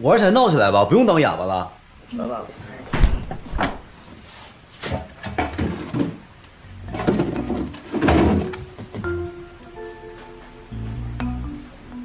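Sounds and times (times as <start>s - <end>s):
refrigerator door opening and shutting: 2.9s - 3.9s, 6.9s - 9.0s
plastic containers knocking: 5.2s - 6.3s, 6.9s - 9.2s.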